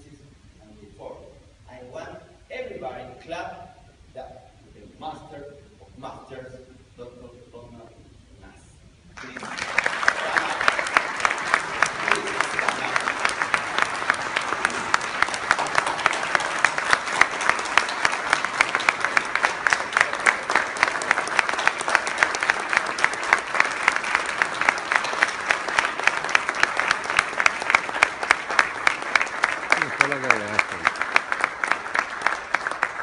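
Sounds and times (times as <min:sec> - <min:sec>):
large audience applauding: 0:09.2 - 0:33.0
sharp evenly spaced claps: 0:09.2 - 0:33.0.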